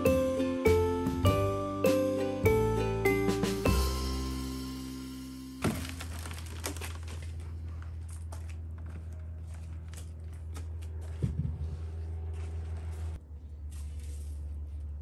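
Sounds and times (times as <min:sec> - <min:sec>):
steady low hum: 0:04.5 - 0:15.0
crinkling and rustling handling: 0:05.6 - 0:15.0.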